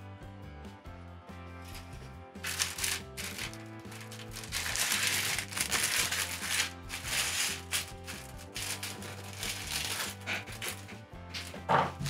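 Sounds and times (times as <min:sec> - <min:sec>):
background music: 0:00.0 - 0:12.0
plastic bag crinkling: 0:02.4 - 0:10.8.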